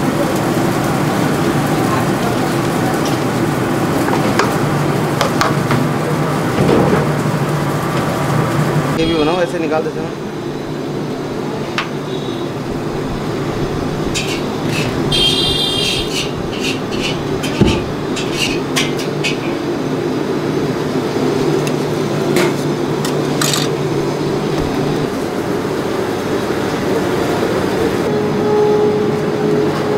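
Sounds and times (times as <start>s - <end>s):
kitchen equipment droning: 0.0s - 29.9s
metal spatula scraping griddle: 14.1s - 15.1s, 15.8s - 19.5s.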